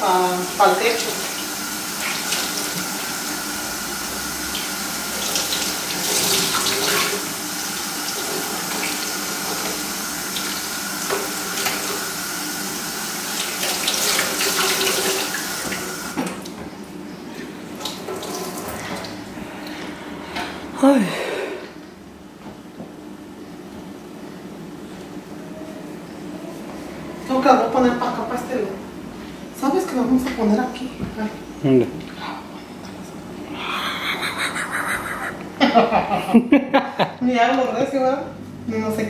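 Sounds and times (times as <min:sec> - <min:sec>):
cloths washed by hand: 0:00.5 - 0:16.2.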